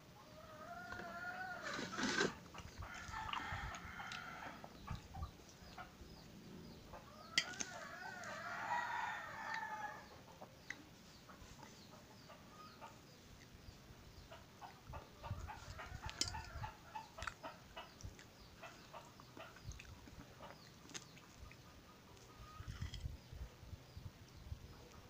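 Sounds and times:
chickens clucking: 0.0s - 24.0s
rooster crowing: 7.1s - 10.1s
eating sounds: 15.4s - 23.1s.

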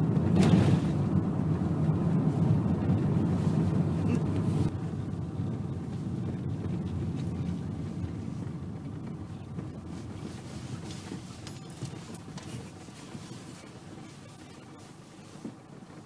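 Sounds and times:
car rumbling on gravel: 0.0s - 16.0s.

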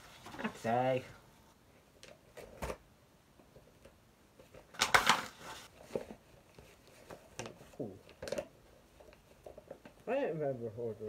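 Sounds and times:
packaging rustling: 4.4s - 10.0s.

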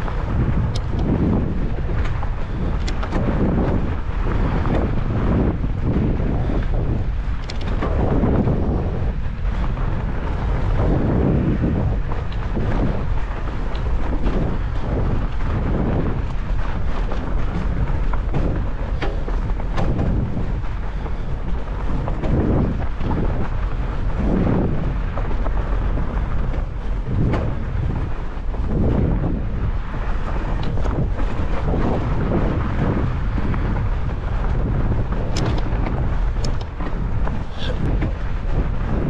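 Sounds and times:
bike knocks and rattles: 0.0s - 39.0s
tyres rumbling on snow: 0.0s - 39.0s
wind buffeting microphone: 0.0s - 39.0s.

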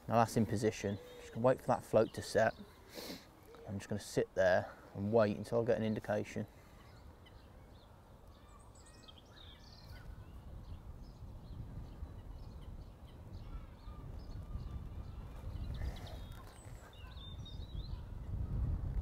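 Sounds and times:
birds chirping: 0.0s - 18.8s
wind rumbling on microphone: 7.0s - 19.0s.

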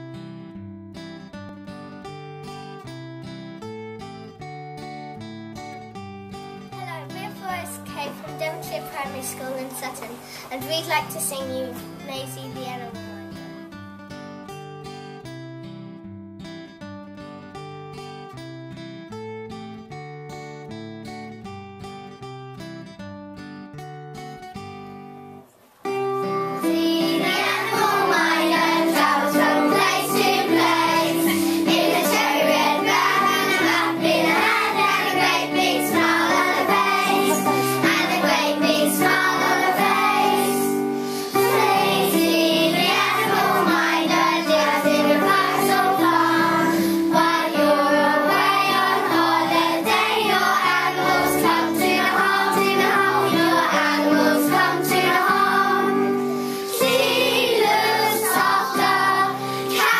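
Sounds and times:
backing music: 25.9s - 59.9s
children singing: 26.5s - 59.9s.

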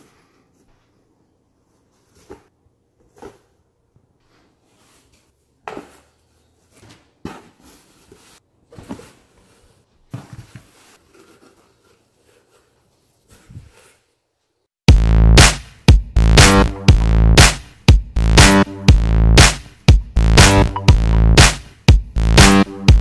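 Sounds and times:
fabric rustling: 4.2s - 14.7s
cardboard scraping and knocking: 6.8s - 11.8s.

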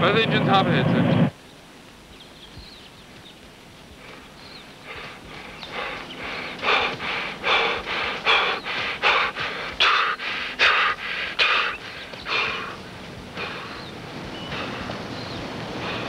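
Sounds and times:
man panting while jogging: 3.9s - 16.0s.

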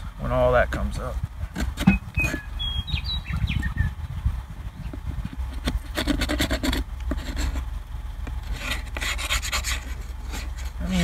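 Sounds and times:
tool scraping wood: 1.5s - 2.5s, 4.9s - 11.0s.

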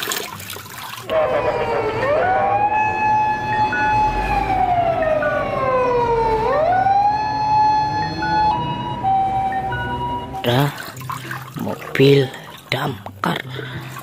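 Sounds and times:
second siren tone: 1.1s - 10.4s
fire truck siren wailing: 1.1s - 10.8s.

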